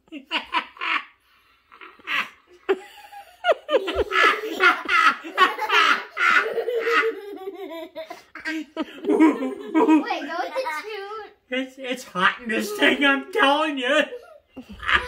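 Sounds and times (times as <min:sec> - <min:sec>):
young children laughing: 0:01.8 - 0:11.1, 0:12.4 - 0:15.0.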